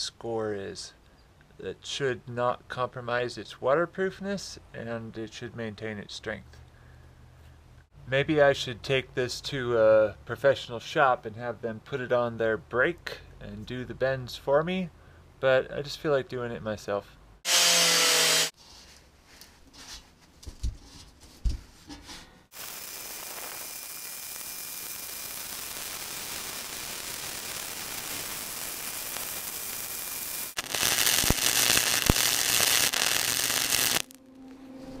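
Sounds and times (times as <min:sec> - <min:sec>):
welder crackling hiss: 0:17.5 - 0:18.5, 0:22.5 - 0:34.2.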